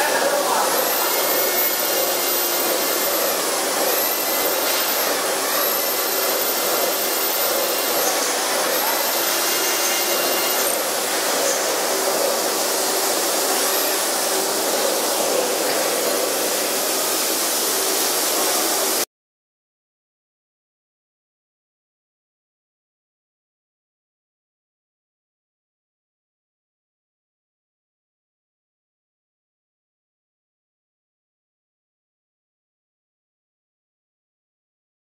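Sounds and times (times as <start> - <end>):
metal milling with coolant spray hiss: 0.0 - 19.0
very high whine: 0.0 - 19.0.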